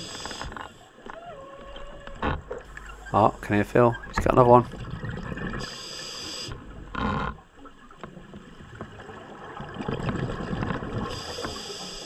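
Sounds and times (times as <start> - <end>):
regulator inhale hiss: 0.0 - 0.8, 5.6 - 6.6, 11.1 - 12.0
exhaled bubbles rumbling: 2.6 - 5.8, 6.6 - 11.2.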